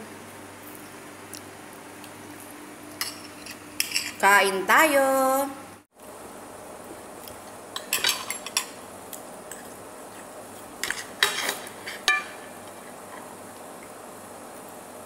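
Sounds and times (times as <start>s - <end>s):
cutlery scraping on a plate: 3.0s - 4.2s, 10.8s - 12.5s.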